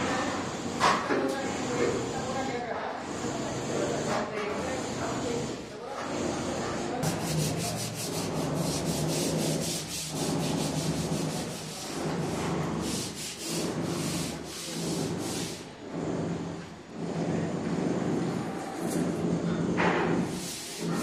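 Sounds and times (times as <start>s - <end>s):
sanding strokes: 6.0s - 16.3s, 20.2s - 21.0s.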